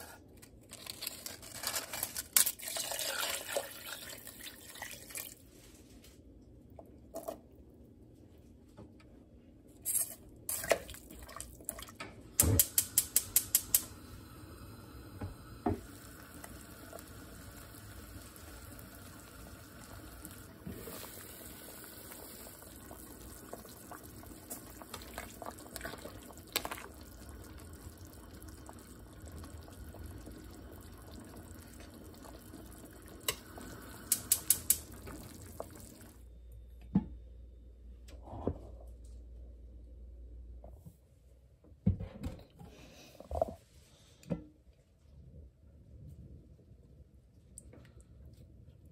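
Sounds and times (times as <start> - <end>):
water pouring into a pot: 1.3 - 5.4, 10.5 - 12.0, 12.9 - 36.2
broth simmering: 12.6 - 36.3.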